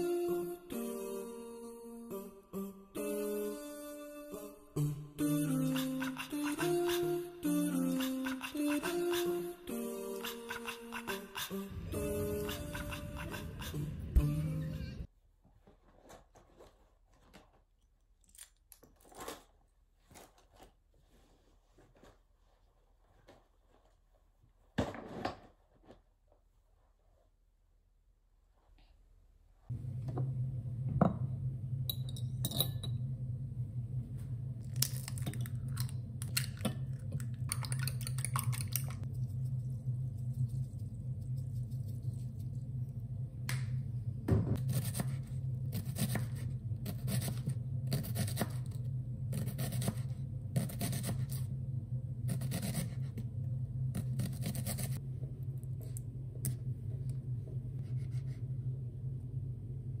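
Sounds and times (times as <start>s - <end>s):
steady low hum: 0.0s - 15.1s, 29.7s - 60.0s.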